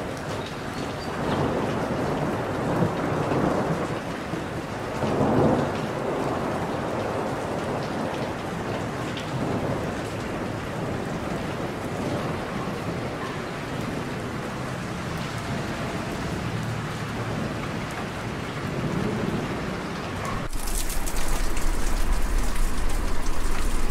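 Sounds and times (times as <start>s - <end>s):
steady rainfall: 0.0s - 23.9s
low rumble: 20.4s - 23.9s.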